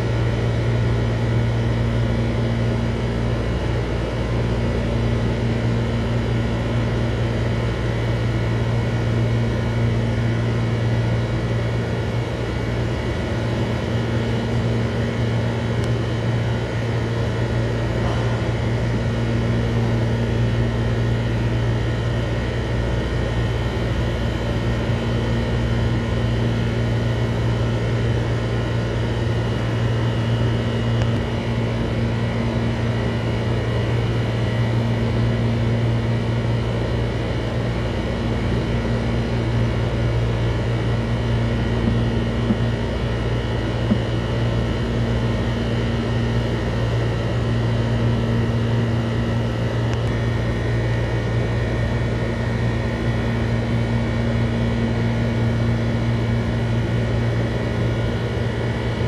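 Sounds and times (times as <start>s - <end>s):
low mechanical hum: 0.0s - 59.0s.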